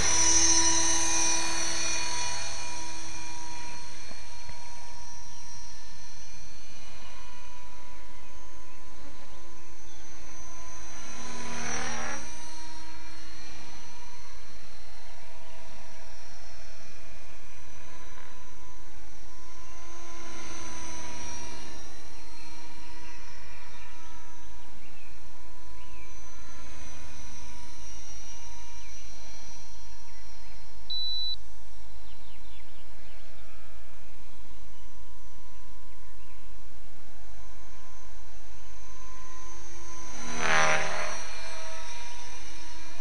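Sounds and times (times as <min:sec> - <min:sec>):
model helicopter motor whine: 0:00.0 - 0:43.0
short high beep: 0:30.9 - 0:31.4.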